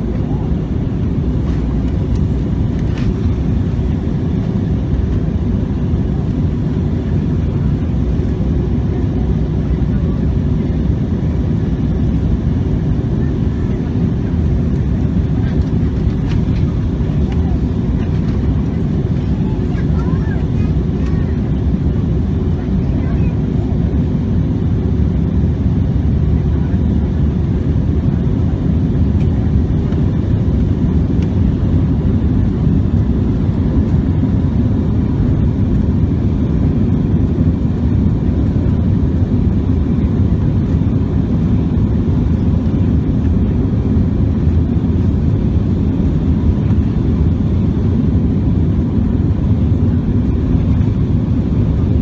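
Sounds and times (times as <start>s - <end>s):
airplane cabin engine and airflow noise: 0.0s - 52.0s.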